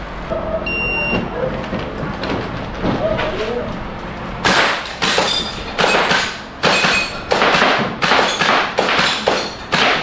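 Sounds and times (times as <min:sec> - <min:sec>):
airsoft gun shots: 0:04.4 - 0:10.0.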